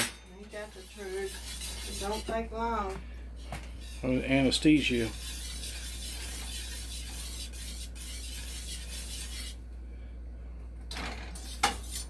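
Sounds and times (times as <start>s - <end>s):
spatula scraping gravy in skillet: 0.5s - 2.5s, 3.8s - 9.6s, 11.4s - 12.0s.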